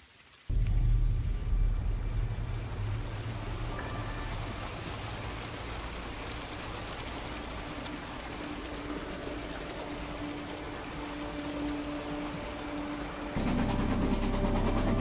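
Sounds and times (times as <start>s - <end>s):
brook splashing over rocks: 0.0s - 13.4s.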